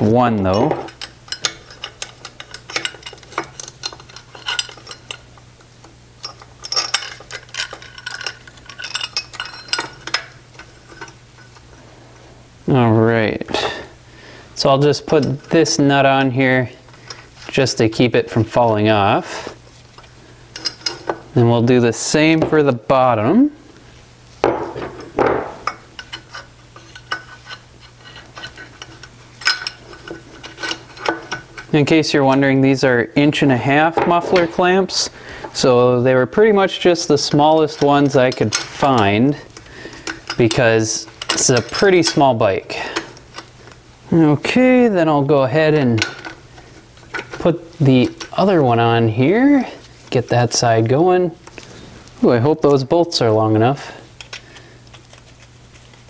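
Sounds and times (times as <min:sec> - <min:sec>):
metal hardware clinking: 0:00.3 - 0:11.7, 0:14.6 - 0:17.6, 0:19.9 - 0:21.4, 0:24.4 - 0:32.5, 0:33.7 - 0:35.8, 0:36.4 - 0:43.8, 0:45.2 - 0:49.9, 0:51.4 - 0:55.6
metallic clicks and clinks: 0:00.4 - 0:05.3, 0:06.2 - 0:11.6
metal clatter: 0:00.5 - 0:05.3, 0:06.2 - 0:11.6.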